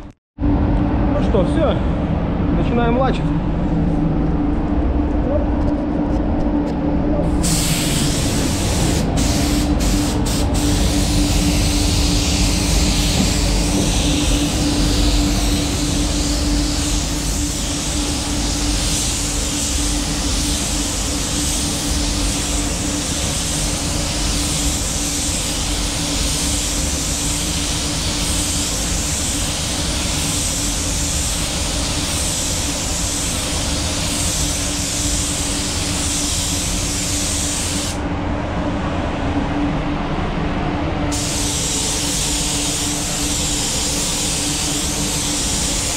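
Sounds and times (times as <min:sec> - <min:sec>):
low hum: 0:00.0 - 0:23.3, 0:37.9 - 0:44.3
spray gun hissing: 0:07.4 - 0:38.0, 0:41.1 - 0:45.9.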